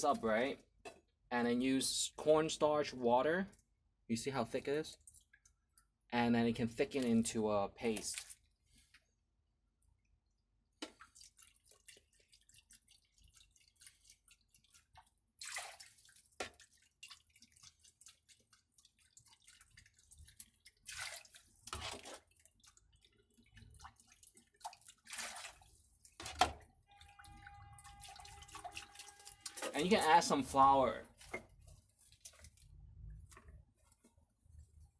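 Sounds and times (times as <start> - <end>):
small ticks and drips: 4.9 - 6.1, 10.0 - 30.0, 31.0 - 34.9
liquid pouring into broth: 26.9 - 29.9.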